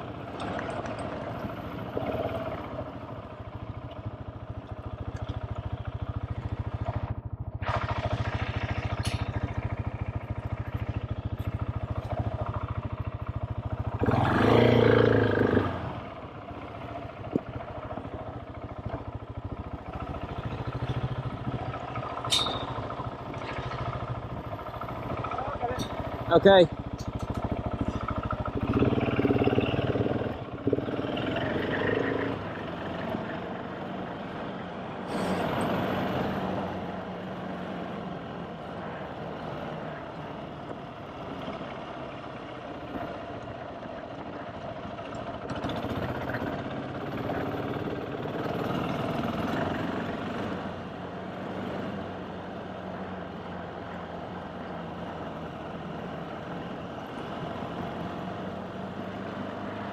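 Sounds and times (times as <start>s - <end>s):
motorcycle engine running: 0.0s - 34.7s, 39.8s - 51.1s.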